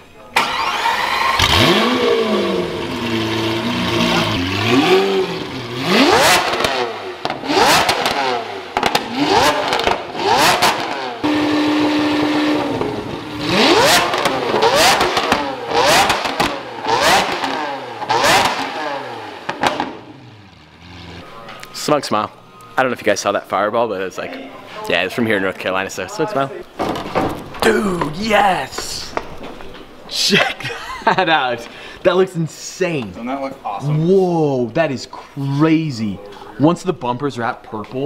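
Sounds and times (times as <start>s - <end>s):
exhaust cracks: 0.4s - 22.4s
sports car engine revving: 0.7s - 21.8s.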